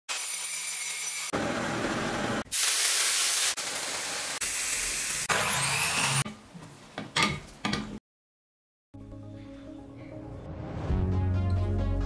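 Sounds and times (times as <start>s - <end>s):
loud power tool: 0.1s - 6.2s
drill press boring wood: 5.3s - 6.2s.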